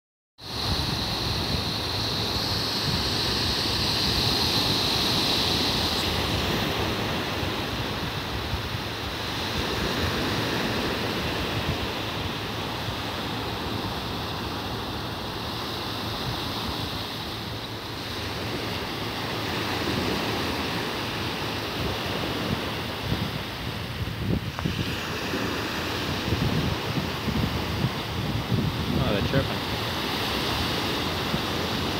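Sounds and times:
high hiss: 0:00.4 - 0:07.2
surf washing up a beach: 0:00.4 - 0:31.9
wind buffeting microphone: 0:00.4 - 0:31.9.

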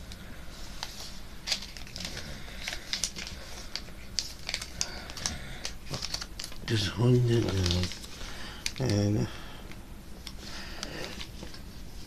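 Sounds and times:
paper crinkling and crackling: 0:00.8 - 0:09.3.

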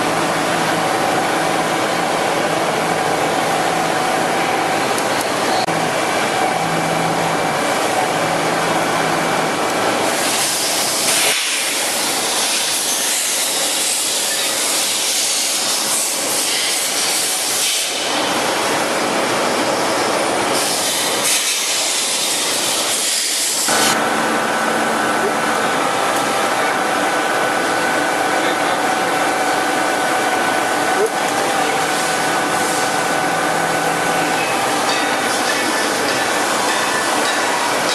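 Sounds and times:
milling machine running: 0:23.6 - 0:37.9.

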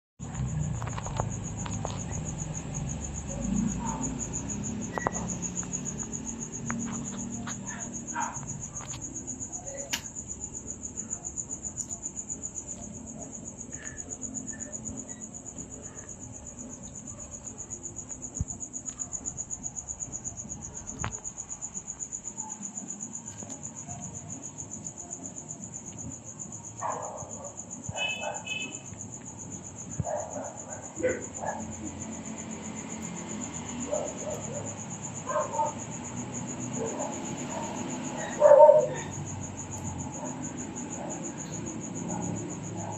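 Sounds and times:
crickets chirping: 0:00.2 - 0:42.9.

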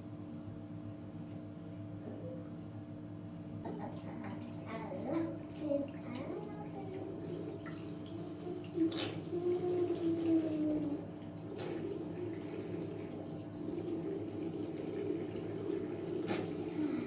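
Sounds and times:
tap water running into sink: 0:03.7 - 0:17.0.

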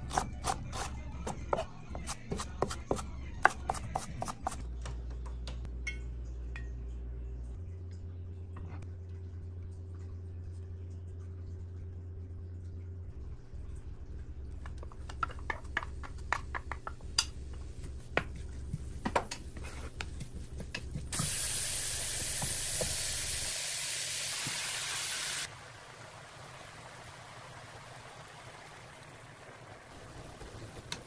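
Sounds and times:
onions sizzling in a pan: 0:21.1 - 0:25.5.

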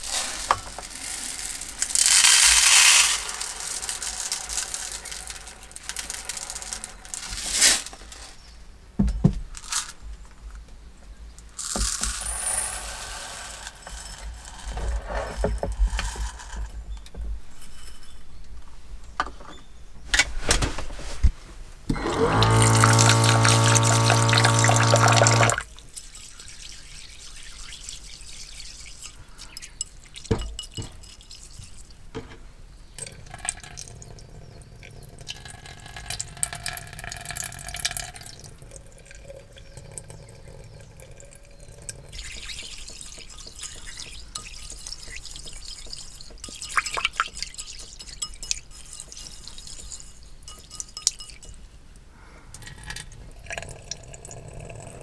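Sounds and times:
tap running: 0:21.9 - 0:25.6, 0:42.0 - 0:48.3
water dripping: 0:21.9 - 0:32.1, 0:33.0 - 0:55.0.

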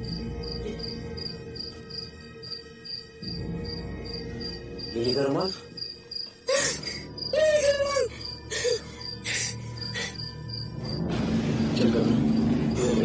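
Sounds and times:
crickets chirping: 0:00.0 - 0:11.1, 0:11.8 - 0:13.0
short wavering cries: 0:05.9 - 0:10.8.

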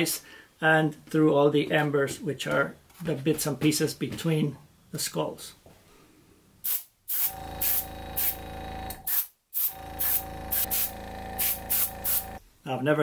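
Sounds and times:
airbrush spraying hisses: 0:06.6 - 0:08.4, 0:09.1 - 0:12.4
compressor humming: 0:07.2 - 0:12.4.

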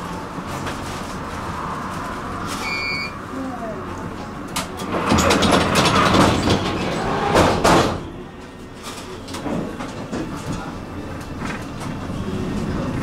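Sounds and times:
sliding doors closing with thud: 0:04.1 - 0:13.0.

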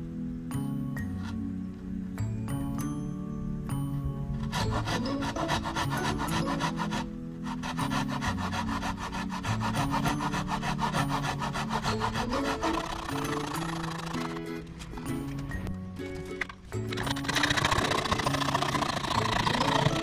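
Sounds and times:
background music: 0:00.0 - 0:20.0
rasping across wood: 0:04.4 - 0:15.5, 0:16.9 - 0:20.0.

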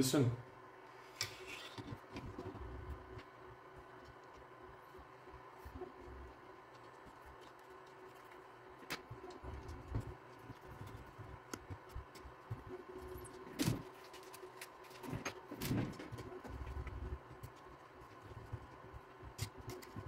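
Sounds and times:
light clicks and knocks of parts: 0:05.9 - 0:20.0.

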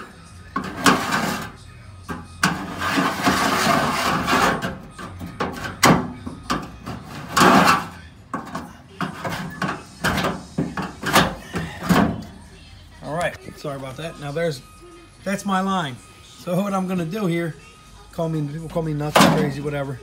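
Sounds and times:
screwdriver scratching sheet metal: 0:00.6 - 0:12.1.

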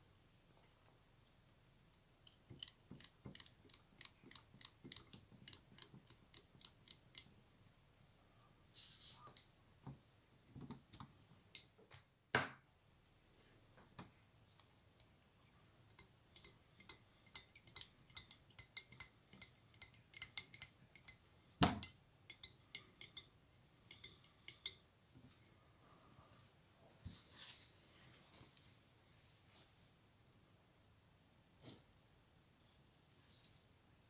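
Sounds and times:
clicking and clinking of small tools: 0:01.8 - 0:07.4, 0:14.6 - 0:21.2.

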